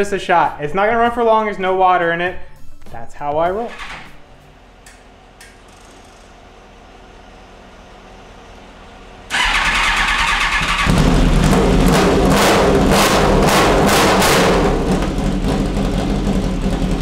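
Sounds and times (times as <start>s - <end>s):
motorcycle engine starting and running: 3.6s - 17.0s.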